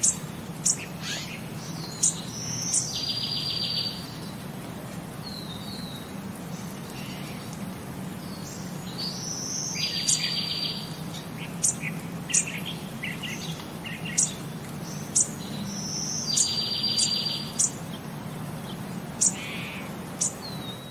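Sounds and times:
high bird-like chirps: 0:15.0 - 0:17.8.

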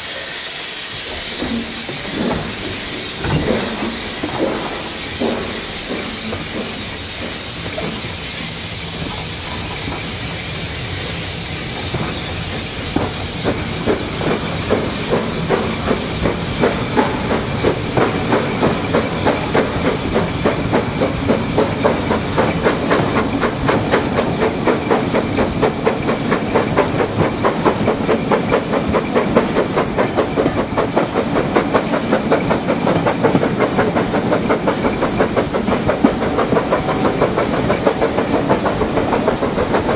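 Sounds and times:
steam hiss: 0:00.0 - 0:39.9
steam locomotive exhaust beats: 0:00.0 - 0:39.9.

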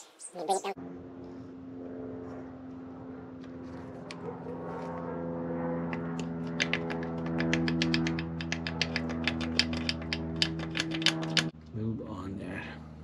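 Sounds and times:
ratchet tool clicking: 0:07.4 - 0:11.5.

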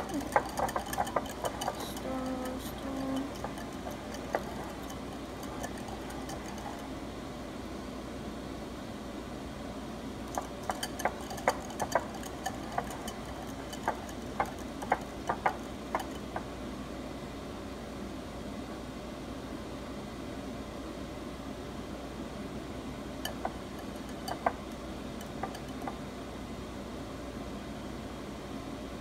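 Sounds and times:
whisk clinking against glass bowl: 0:00.0 - 0:07.0, 0:10.3 - 0:16.5, 0:23.2 - 0:26.0
whisk stirring pudding: 0:00.0 - 0:07.0, 0:10.2 - 0:16.5, 0:23.2 - 0:26.0
steady low hum: 0:00.0 - 0:29.0.

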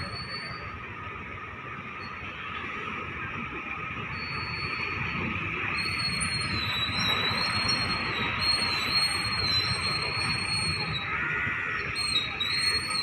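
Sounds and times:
thin high-pitched whine: 0:00.0 - 0:02.5
motor scooter engines running: 0:00.0 - 0:13.0.

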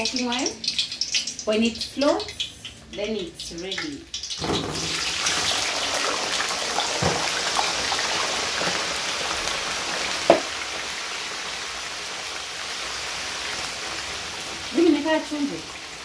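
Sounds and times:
fries sizzling in hot oil: 0:00.0 - 0:16.0
sharp knock: 0:10.3 - 0:10.5.

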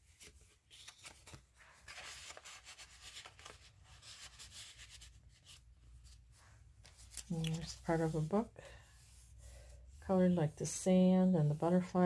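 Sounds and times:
paper and card rustling: 0:00.0 - 0:10.2.

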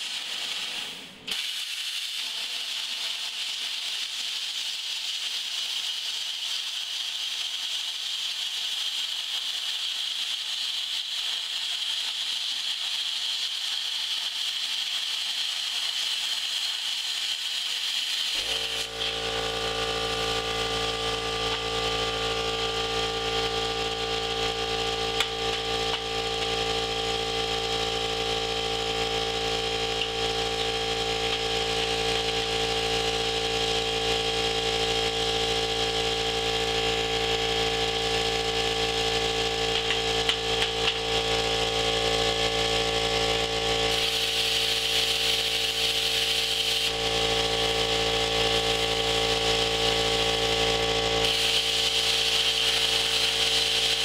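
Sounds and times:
machinery hiss: 0:00.0 - 0:28.4, 0:29.6 - 0:54.0
machinery hum: 0:18.4 - 0:54.0.

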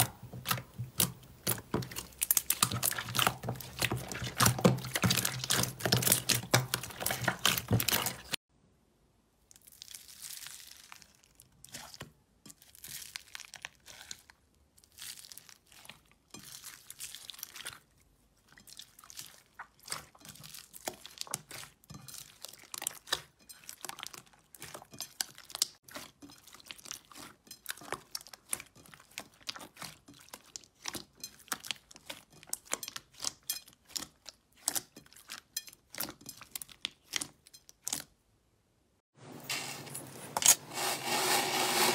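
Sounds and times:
slime squishing: 0:00.0 - 0:08.4, 0:09.5 - 0:38.2
foam-bead slime crackling: 0:09.5 - 0:12.0.

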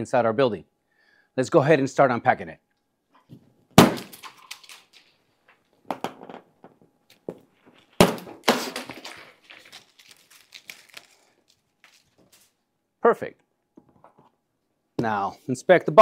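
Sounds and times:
small clicks and rustling: 0:04.2 - 0:05.8.

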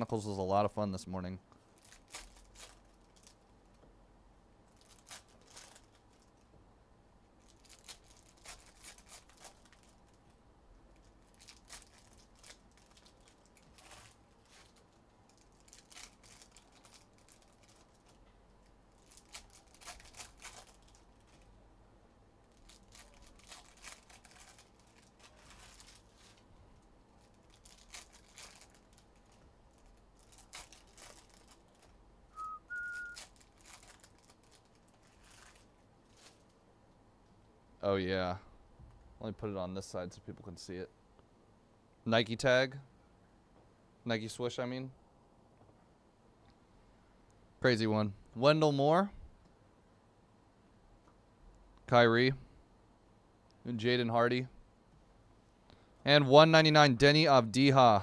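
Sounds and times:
wrapper tearing and crinkling: 0:01.8 - 0:03.4, 0:04.7 - 0:06.4, 0:07.4 - 0:10.2, 0:11.0 - 0:18.2, 0:18.9 - 0:21.5, 0:22.5 - 0:26.5, 0:27.2 - 0:31.9, 0:33.0 - 0:36.6.

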